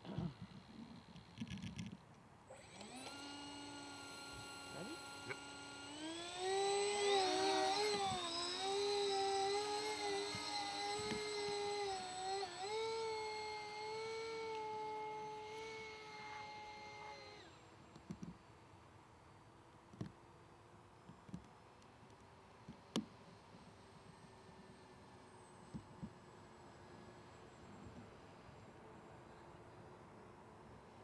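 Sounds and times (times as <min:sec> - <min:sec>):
model aircraft motors whining: 0:00.0 - 0:18.4.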